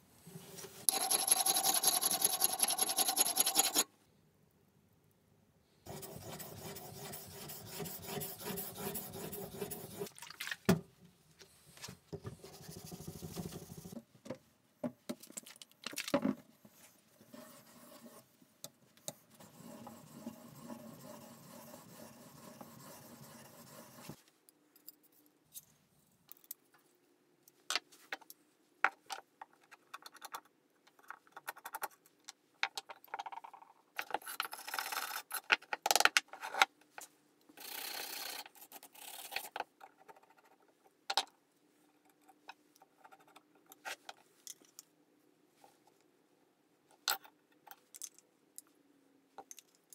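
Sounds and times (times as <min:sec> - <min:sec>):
plane iron scraping on sharpening stone: 0:00.9 - 0:03.8.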